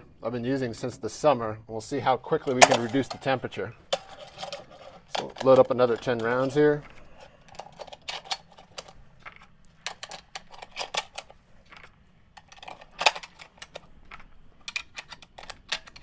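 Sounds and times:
metallic clicks of cartridges loading: 7.2 - 16.0.

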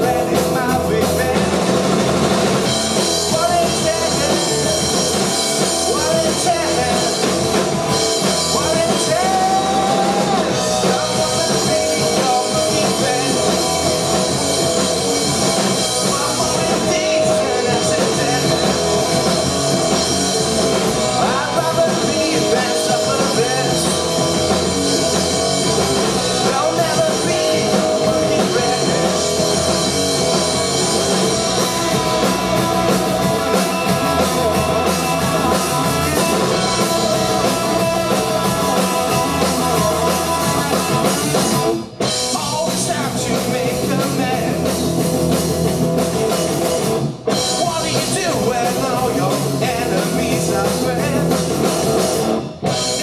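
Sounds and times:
drum kit: 0.0 - 53.0
electric guitars: 0.0 - 53.0.

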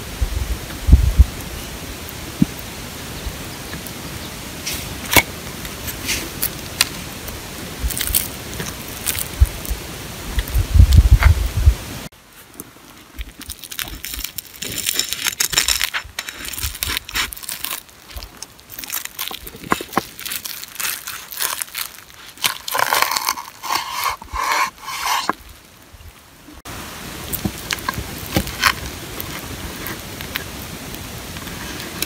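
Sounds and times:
bun crackling and crunching: 6.1 - 11.3, 12.3 - 24.5, 27.3 - 32.0
crunchy chewing: 7.8 - 9.8, 12.5 - 25.4.

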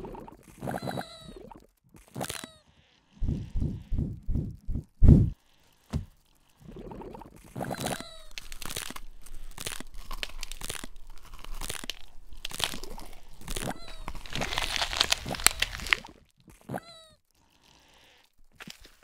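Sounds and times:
crunching chewing: 5.3 - 19.0.

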